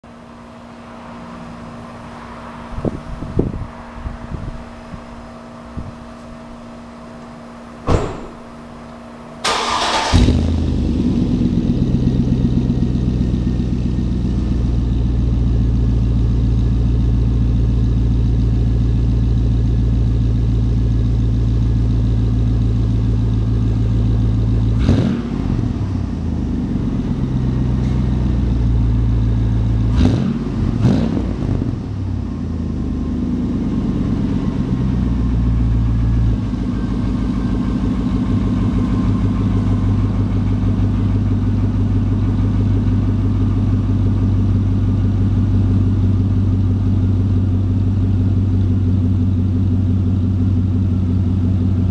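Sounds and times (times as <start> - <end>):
car engine idling: 0.0 - 51.9
engine cranking: 8.0 - 10.5
engine revving: 9.4 - 13.2, 24.6 - 26.3, 29.8 - 32.0.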